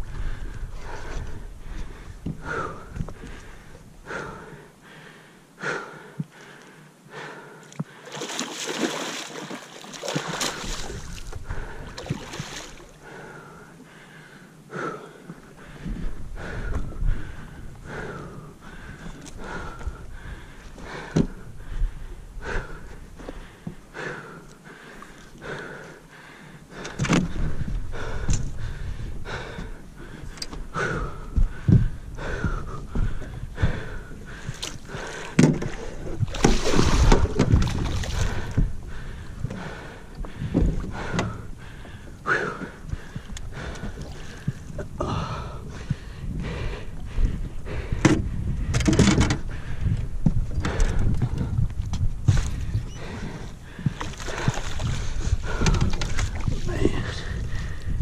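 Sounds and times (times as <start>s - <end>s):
knocks and clicks on boat: 0.5s - 3.5s, 20.8s - 21.5s, 26.8s - 28.6s, 29.4s - 45.2s, 47.2s - 56.7s.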